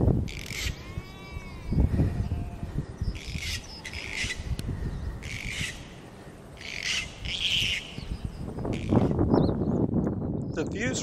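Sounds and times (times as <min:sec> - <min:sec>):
wind buffeting microphone: 0:00.0 - 0:11.0
harsh bird squawks: 0:00.3 - 0:02.6, 0:03.2 - 0:04.5, 0:05.2 - 0:05.9, 0:06.6 - 0:08.0, 0:08.7 - 0:09.2.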